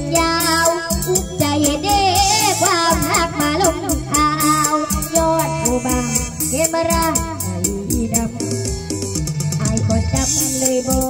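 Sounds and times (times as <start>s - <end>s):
girl singing into a microphone: 0.0s - 8.8s, 9.5s - 11.0s
backing track with beat and bass: 0.0s - 11.0s.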